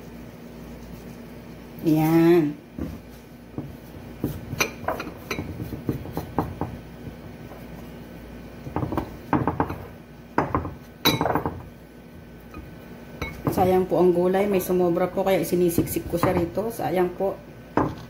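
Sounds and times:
vegetables knocking in ceramic dish: 8.7s - 11.6s.

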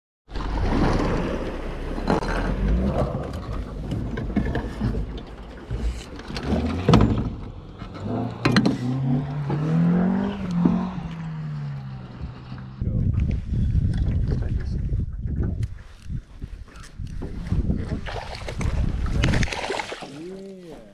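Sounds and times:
wind rumbling on microphone: 8.6s - 20.9s.

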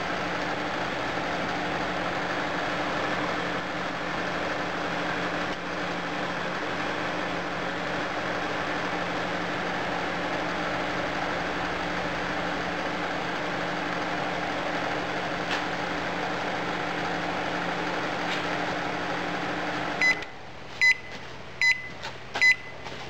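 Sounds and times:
fan noise with electrical hum: 0.0s - 23.0s
microwave short high beeps: 20.0s - 22.8s.

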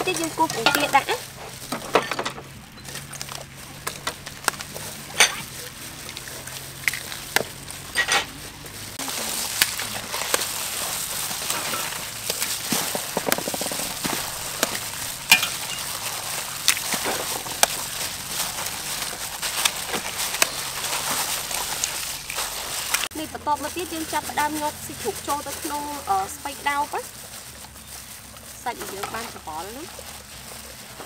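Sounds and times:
gloved hands squishing wet filling: 2.5s - 31.0s
egg cracking: 8.8s - 23.1s.

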